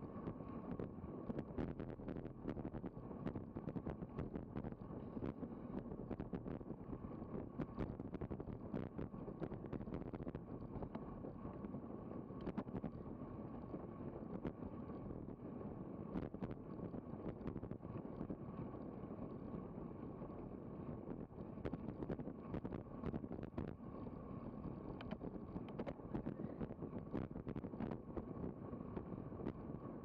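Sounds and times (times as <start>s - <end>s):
sharp clicks and knocks: 25.0s - 26.0s.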